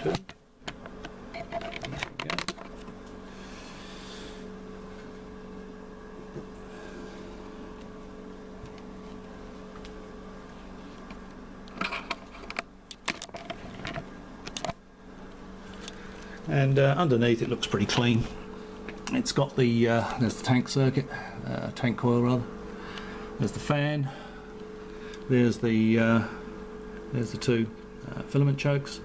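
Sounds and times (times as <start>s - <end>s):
steady low hum: 0.0s - 29.0s.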